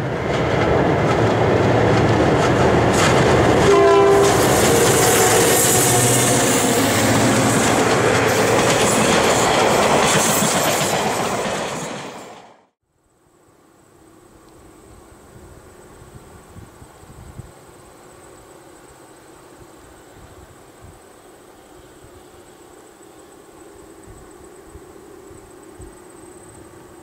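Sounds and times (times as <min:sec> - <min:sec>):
diesel train passing: 0:00.0 - 0:12.7
train horn blast: 0:03.5 - 0:08.0.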